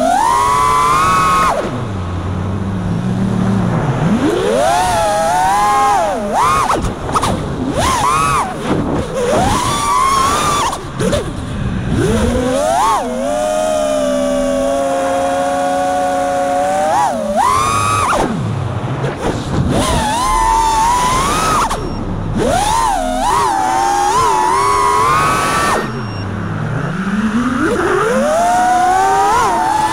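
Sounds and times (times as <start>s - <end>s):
drone motors and propellers whining: 0.0s - 29.9s.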